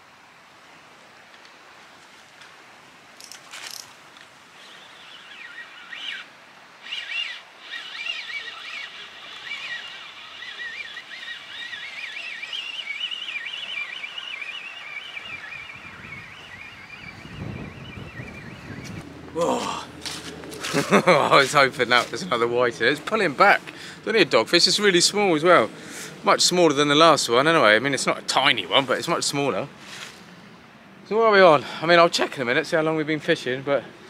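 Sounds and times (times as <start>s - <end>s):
rod clicks and knocks: 3.2s - 4.3s
fishing reel gears whining: 4.5s - 17.2s.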